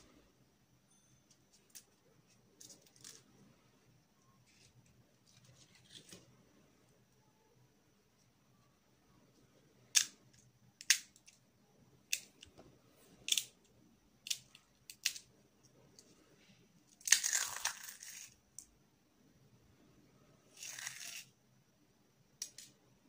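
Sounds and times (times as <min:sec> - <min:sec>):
crisp shells snapping: 0:14.2 - 0:15.3, 0:17.0 - 0:18.7.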